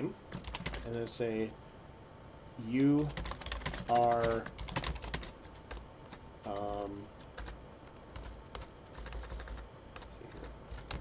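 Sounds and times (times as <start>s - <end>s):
keyboard typing: 0.3s - 0.9s, 2.8s - 11.0s.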